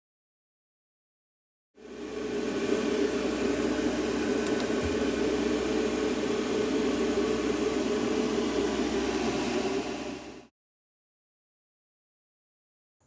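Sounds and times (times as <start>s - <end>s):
cooling fan running: 1.8s - 10.5s.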